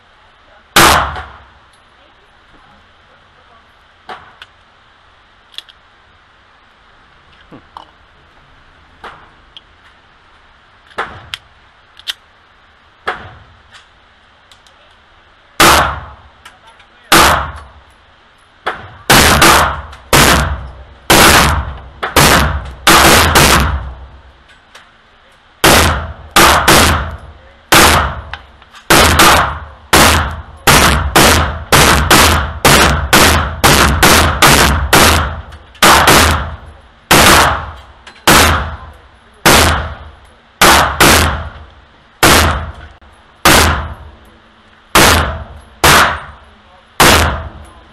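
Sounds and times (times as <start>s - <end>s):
pistol handling clicks: 5.5s - 5.8s, 10.9s - 12.2s
pistol shots ringing indoors: 47.0s - 47.5s.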